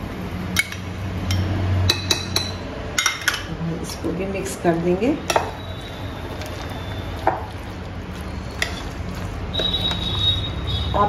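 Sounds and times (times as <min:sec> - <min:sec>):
spoon stirring squelchy food: 0:05.2 - 0:11.0.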